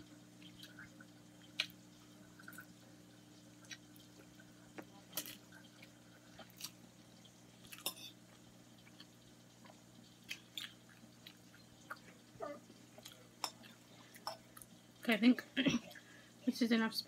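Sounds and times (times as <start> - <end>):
wet chewing: 8.8 - 12.2.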